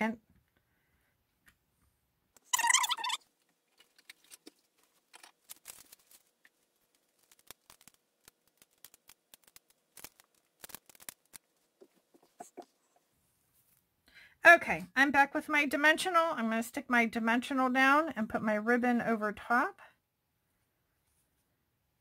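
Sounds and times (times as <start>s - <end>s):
light rustling of supplies: 3.2s - 14.0s.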